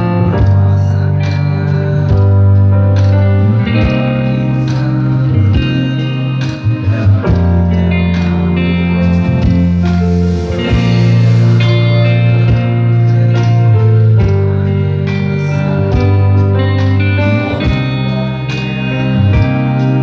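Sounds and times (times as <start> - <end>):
electric guitar: 0.0 - 20.0
keyboards: 0.0 - 20.0
steady drum beat: 9.0 - 13.6.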